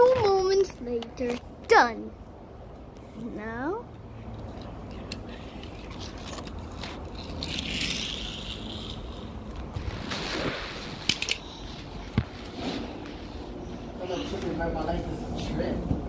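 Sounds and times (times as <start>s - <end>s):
toy car scraping on wooden floor: 5.9s - 11.2s.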